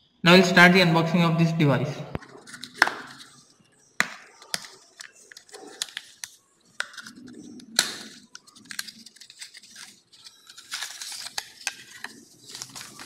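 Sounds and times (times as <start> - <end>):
cardboard and plastic rustling: 4.3 - 13.0.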